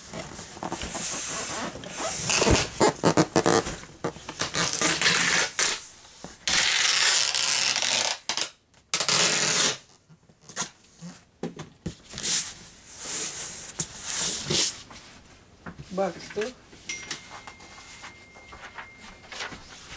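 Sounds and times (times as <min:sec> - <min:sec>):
packing tape pulled from tape gun: 0:04.4 - 0:05.8, 0:06.4 - 0:09.9
tape clicks and rubs: 0:06.4 - 0:09.8.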